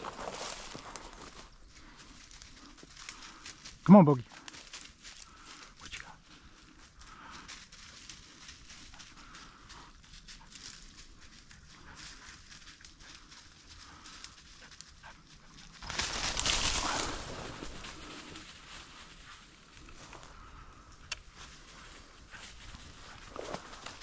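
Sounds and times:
footsteps crunching dry leaves: 0:00.0 - 0:05.6, 0:15.7 - 0:19.8
crashing through brush: 0:15.8 - 0:18.0.

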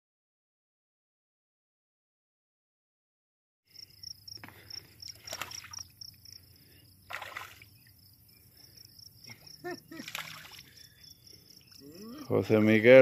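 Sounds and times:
insects chirping: 0:03.7 - 0:13.0
lure splashing on water: 0:05.0 - 0:05.9, 0:07.1 - 0:07.9, 0:09.9 - 0:10.8.

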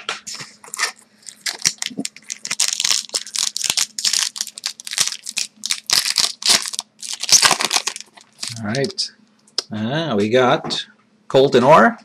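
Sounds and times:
foil wrapper crinkling and tearing: 0:00.7 - 0:09.0.

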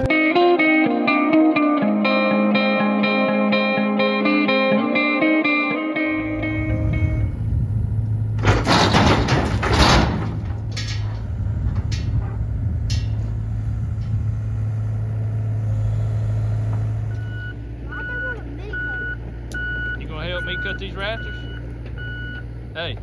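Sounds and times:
heavy engine idling: 0:06.2 - 0:23.0
sharp knocks: 0:08.4 - 0:11.2.

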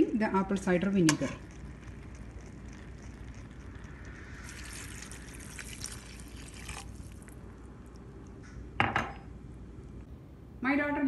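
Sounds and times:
liquid pouring into a pot: 0:00.7 - 0:08.3.

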